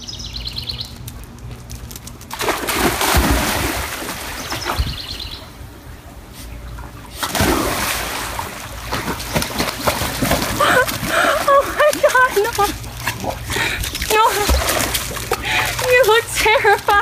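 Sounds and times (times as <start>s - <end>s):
dogs splashing in pool: 2.2s - 5.0s, 6.8s - 17.0s
water sloshing: 2.2s - 5.7s, 6.8s - 17.0s.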